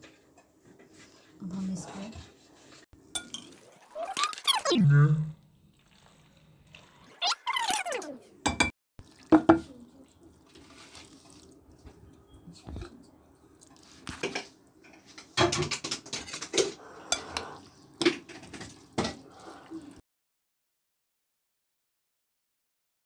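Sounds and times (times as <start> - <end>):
metal spoon clinking in glass bowl: 3.1 - 3.6.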